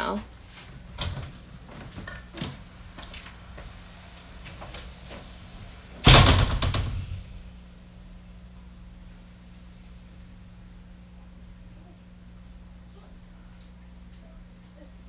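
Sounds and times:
soft hiss: 2.7 - 11.9
door rattling: 6.0 - 7.4
glass door banging shut: 6.0 - 7.4.

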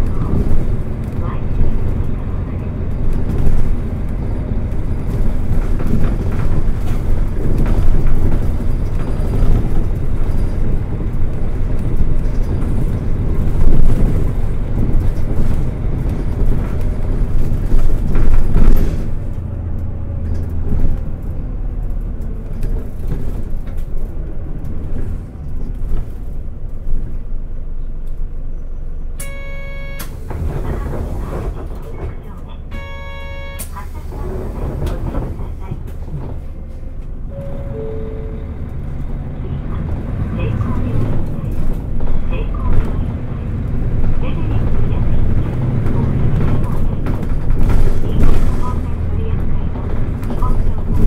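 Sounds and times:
bus diesel engine and road noise: 0.0 - 51.0
electronic buzzer tone: 29.2 - 30.1, 32.7 - 33.7.

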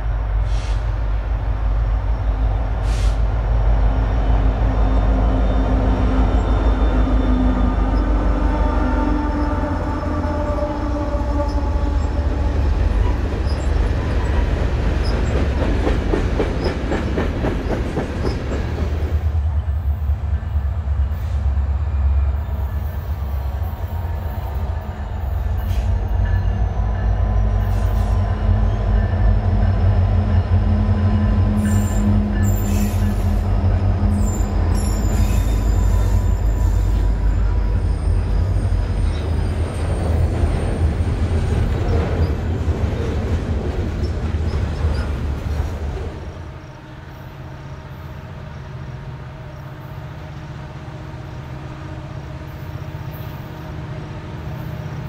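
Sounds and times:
diesel freight train rumbling past: 0.0 - 55.0
train wheels clicking over rail joints: 11.5 - 19.3, 25.5 - 46.4.

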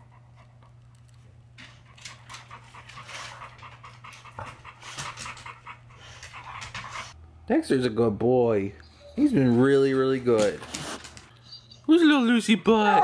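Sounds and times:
dog panting quickly: 1.6 - 7.2.

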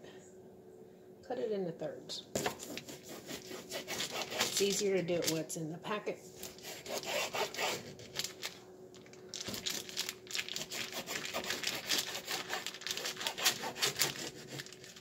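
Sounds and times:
knife sawing through packaged bacon: 2.4 - 4.8, 6.4 - 8.4, 9.5 - 15.0.

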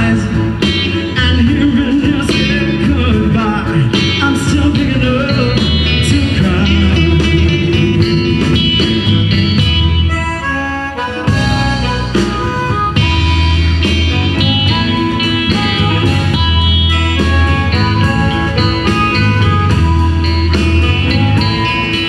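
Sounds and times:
person singing: 0.0 - 9.2
bass guitar: 0.0 - 22.0
drums: 0.0 - 22.0
electric guitar: 0.0 - 22.0
harmonica: 0.0 - 22.0
keyboard: 0.0 - 22.0.

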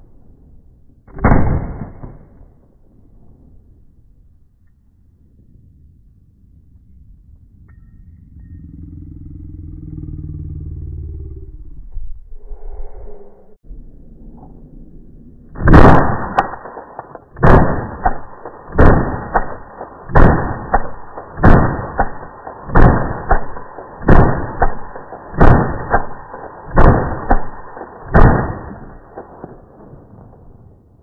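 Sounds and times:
rifle shots: 1.1 - 2.8, 15.6 - 30.7.

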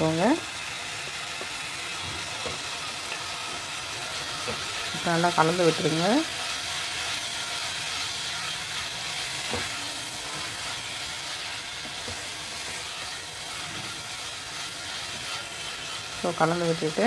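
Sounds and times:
food sizzling in a pan: 0.0 - 17.0
wooden spatula scraping: 7.9 - 17.0.

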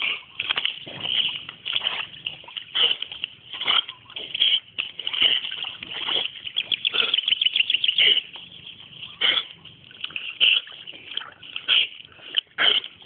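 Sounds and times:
dog splashing in water: 0.0 - 13.0.

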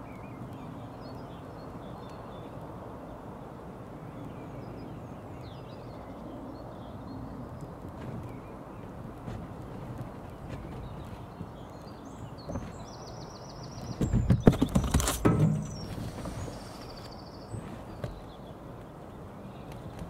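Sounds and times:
loud thumps and knocks: 13.9 - 16.5.

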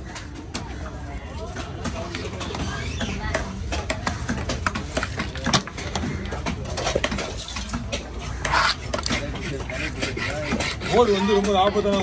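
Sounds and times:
knife scraping: 8.2 - 11.6.

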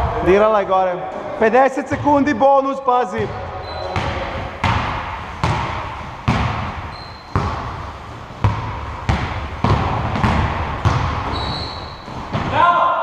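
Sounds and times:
basketball bouncing on gym floor: 3.3 - 12.6.

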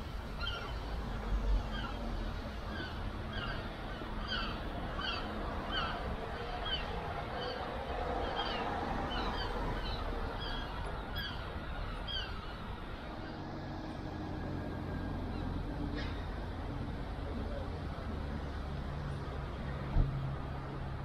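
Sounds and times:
birds calling: 0.0 - 13.4.

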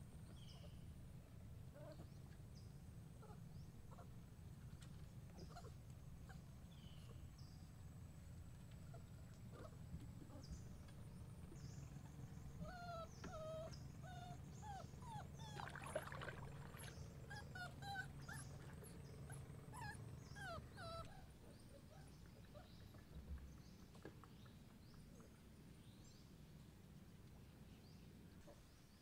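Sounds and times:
puppy whimpering: 12.6 - 15.8, 17.3 - 22.7
paddle splashing water: 15.6 - 17.2.

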